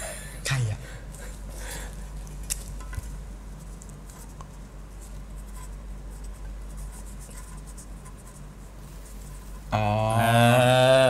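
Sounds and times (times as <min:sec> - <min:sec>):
low steady hum: 0:00.0 - 0:11.0
pen scratching on paper: 0:05.0 - 0:09.2.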